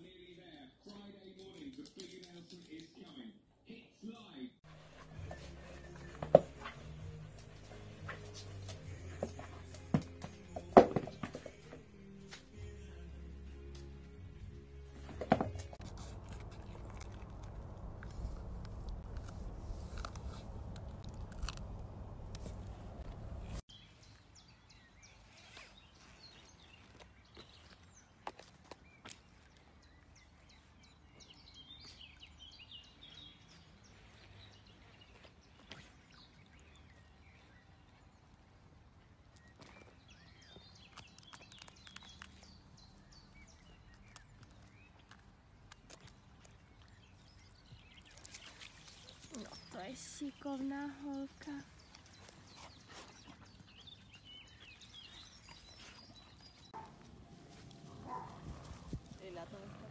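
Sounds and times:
small birds chirping: 0:15.8 - 0:59.9.

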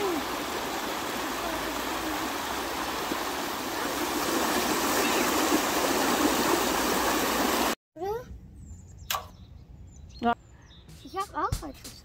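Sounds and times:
creek rushing over stones: 0:00.0 - 0:07.8.

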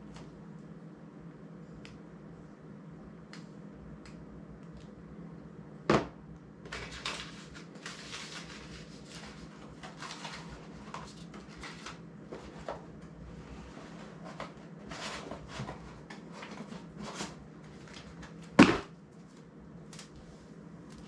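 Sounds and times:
paper packaging rustling: 0:06.7 - 0:13.0.

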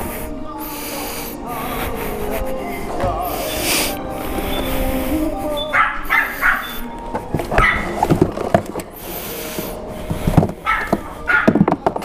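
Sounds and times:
dog barking: 0:05.7 - 0:06.8, 0:07.6 - 0:08.0, 0:10.6 - 0:11.6
handling knocks: 0:10.1 - 0:12.0.

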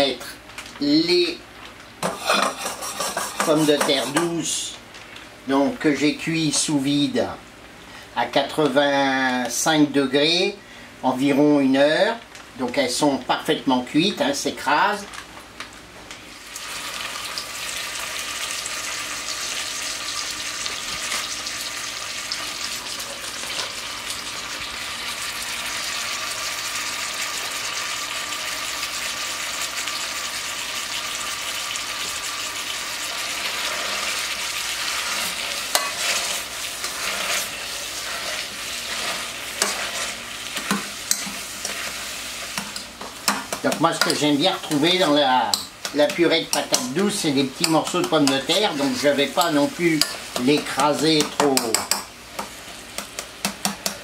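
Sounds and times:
butter sizzling in a pan: 0:02.0 - 0:04.2, 0:16.3 - 0:54.0
potato masher scraping a pan: 0:02.0 - 0:04.3, 0:33.1 - 0:52.5.

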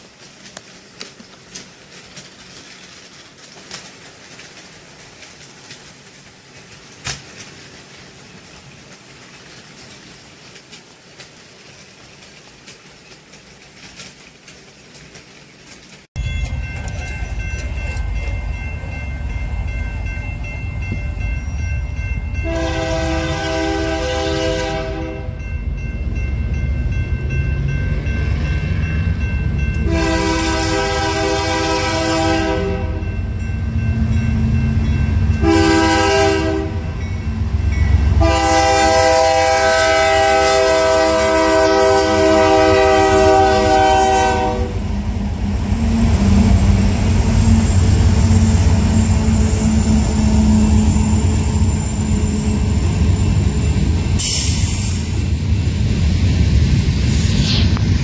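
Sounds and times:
diesel locomotives rumbling past: 0:00.0 - 0:58.0
locomotive air horn blasts: 0:22.4 - 0:25.4, 0:29.8 - 0:33.1, 0:35.4 - 0:36.9, 0:38.2 - 0:44.9.

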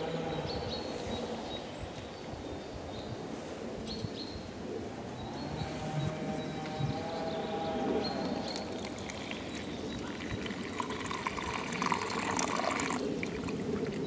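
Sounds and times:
water pouring into mug: 0:08.4 - 0:14.0.

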